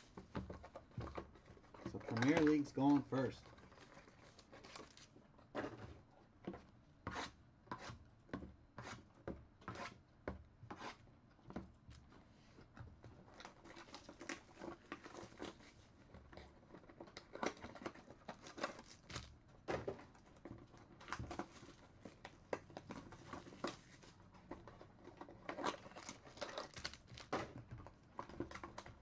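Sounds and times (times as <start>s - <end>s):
plastic shrink-wrap crinkling and tearing: 3.6s - 5.1s, 17.1s - 19.3s, 25.4s - 27.5s.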